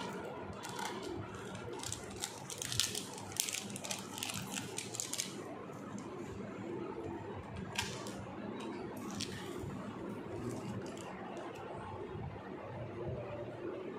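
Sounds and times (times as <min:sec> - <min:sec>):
low room murmur: 0:00.0 - 0:13.9.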